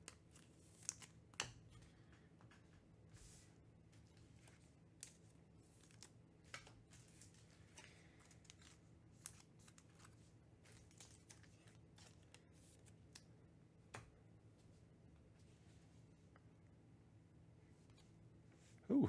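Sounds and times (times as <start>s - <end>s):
cards and foil packs rustling: 0.0s - 2.7s, 3.9s - 13.3s
low steady hum: 0.0s - 19.0s.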